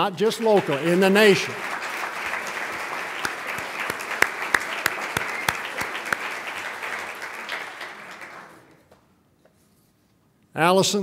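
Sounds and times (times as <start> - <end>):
audience applauding: 0.0 - 8.8
regular loud claps: 0.0 - 9.0.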